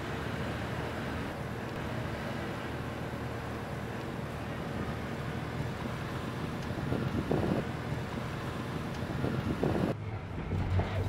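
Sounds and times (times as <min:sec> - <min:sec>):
truck tyre and road noise: 0:00.0 - 0:11.0
wind on microphone: 0:06.7 - 0:07.7, 0:09.0 - 0:10.0.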